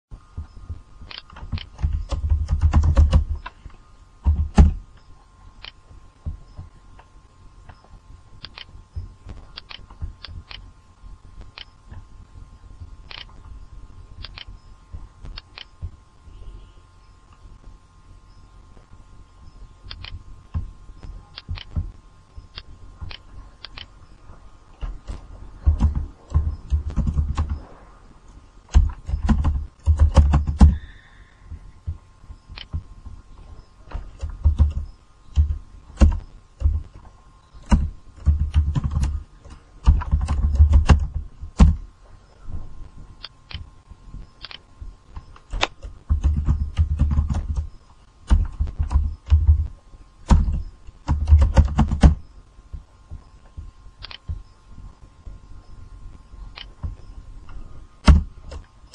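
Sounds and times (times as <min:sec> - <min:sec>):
faint steady tone: 0:00.1 - 0:58.9
keyboard typing: 0:01.1 - 0:03.6, 0:24.8 - 0:27.6, 0:28.7 - 0:30.9, 0:34.0 - 0:37.0, 0:37.6 - 0:41.8, 0:45.2 - 0:47.7, 0:48.3 - 0:49.7, 0:50.3 - 0:52.2
mouse clicking: 0:08.4 - 0:08.7, 0:22.5 - 0:23.9.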